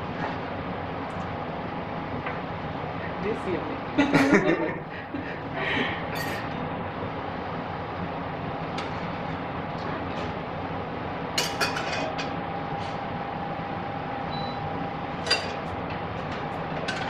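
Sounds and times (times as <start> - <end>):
kitchen background hum: 0.0 - 17.0
utensils clinking on metal cookware: 6.2 - 6.5, 11.4 - 12.3, 15.2 - 15.6.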